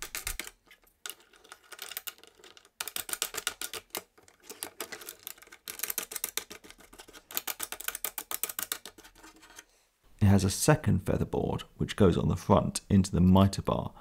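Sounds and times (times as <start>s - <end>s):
plastic parts clicking and rattling: 0.0s - 9.7s.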